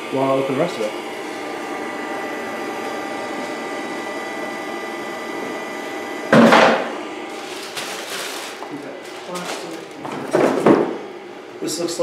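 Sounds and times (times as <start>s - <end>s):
charger cooling fan running: 0.0s - 12.0s
loud knock: 10.3s - 11.0s.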